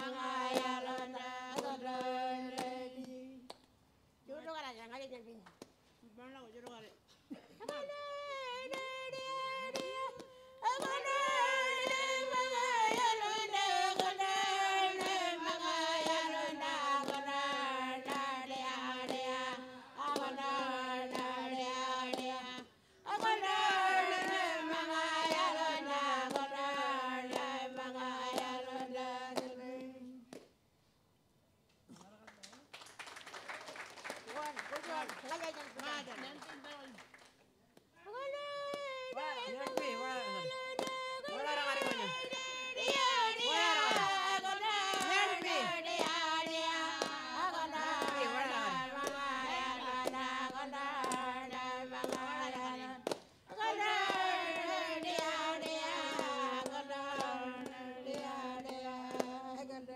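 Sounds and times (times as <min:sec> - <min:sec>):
women singing together: 0:00.0 - 0:03.7, 0:06.6 - 0:30.5, 0:38.0 - 0:59.9
person chanting: 0:07.8 - 0:30.2, 0:38.0 - 0:59.9.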